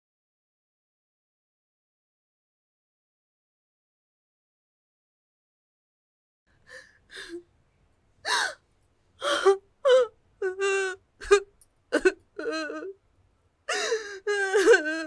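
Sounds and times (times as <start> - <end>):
woman crying: 9.2 - 13.0, 13.7 - 15.0.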